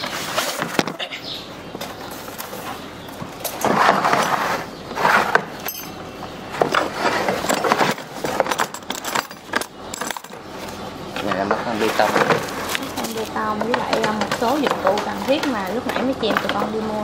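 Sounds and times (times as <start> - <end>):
scattered clinks: 5.6 - 6.0.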